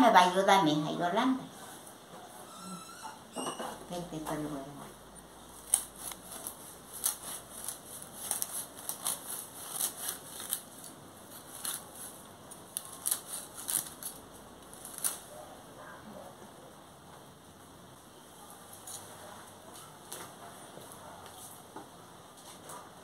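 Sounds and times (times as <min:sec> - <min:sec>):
knife cutting through stems: 0:05.5 - 0:15.3.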